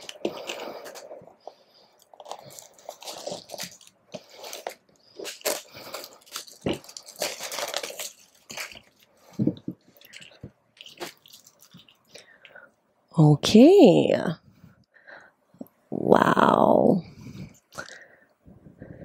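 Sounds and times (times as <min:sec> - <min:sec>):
plastic shrink-wrap crinkling: 0:00.0 - 0:12.3.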